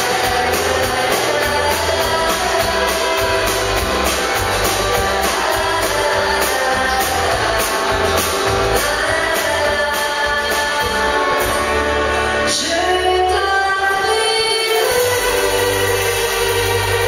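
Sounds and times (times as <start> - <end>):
electric guitar: 0.0 - 13.4
drums: 0.0 - 17.0
woman singing into microphone: 0.0 - 17.0.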